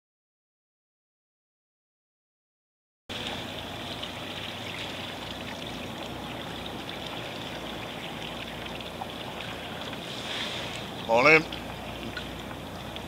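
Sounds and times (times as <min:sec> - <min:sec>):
water lapping against kayak hull: 0:03.1 - 0:13.0.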